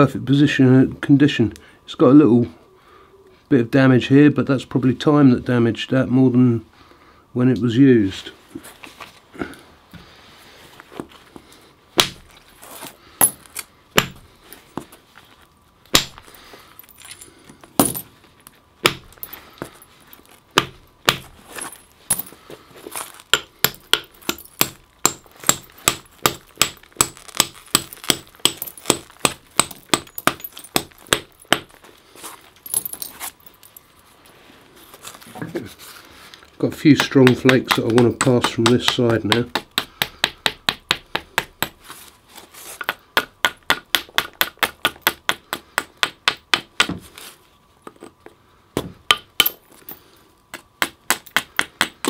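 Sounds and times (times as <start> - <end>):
antler striking flint: 12.0 - 14.3, 15.9 - 17.0, 18.8 - 19.8, 20.5 - 31.9.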